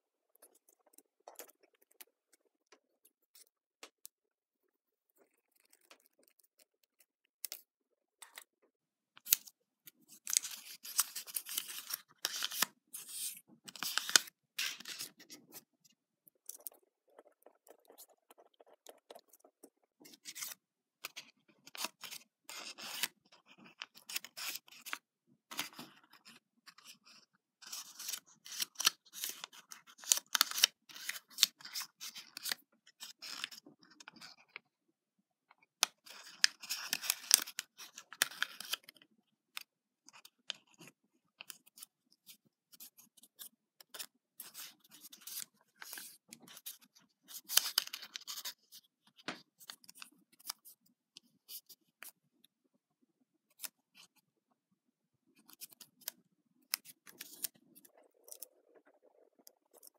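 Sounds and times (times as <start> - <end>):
paper rustling and crackling: 10.1 - 15.6.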